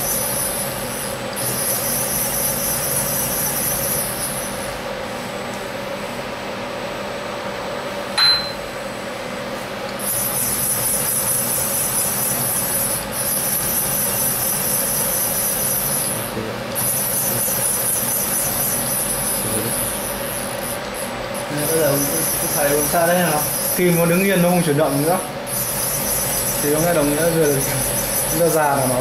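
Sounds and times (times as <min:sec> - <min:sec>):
high-pitched whine of table drives: 0:00.0 - 0:29.0
milling machine humming: 0:00.0 - 0:29.0
short beep: 0:08.2 - 0:08.7.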